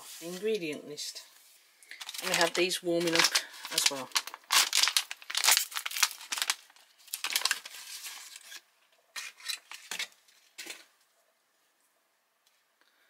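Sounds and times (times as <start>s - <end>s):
foil pouch tearing and crinkling: 1.9s - 8.6s.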